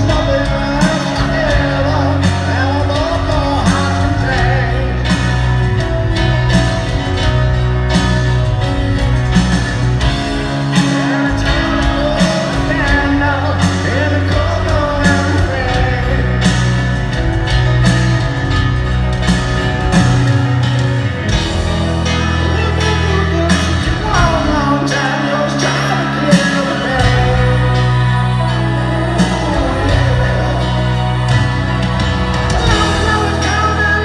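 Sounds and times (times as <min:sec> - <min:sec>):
male lead vocal: 0:00.0 - 0:06.6, 0:10.2 - 0:17.8, 0:21.2 - 0:34.0
grand piano: 0:00.0 - 0:34.0
slow steady drum beat: 0:00.0 - 0:34.0.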